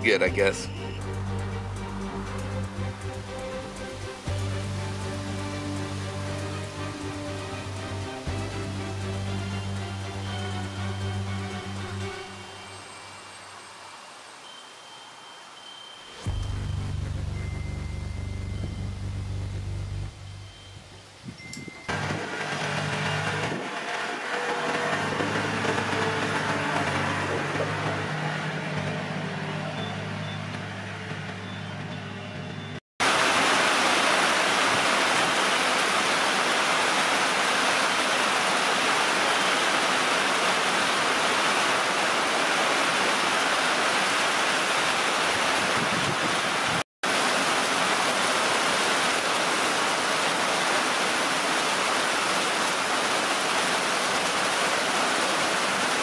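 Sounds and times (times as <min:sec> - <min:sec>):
low steady drone: 0:00.0 - 0:13.1, 0:16.2 - 0:20.5, 0:21.9 - 0:31.4
heavy rain: 0:00.0 - 0:21.2, 0:21.8 - 0:30.4, 0:33.0 - 0:56.0.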